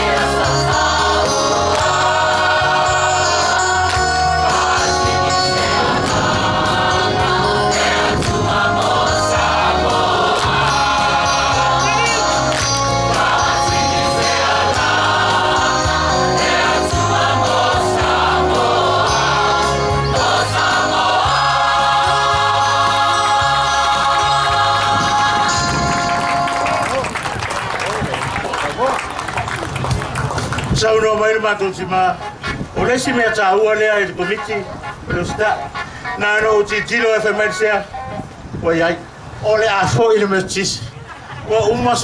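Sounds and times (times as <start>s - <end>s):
choir singing: 0.0s - 26.5s
low bass line: 0.0s - 27.0s.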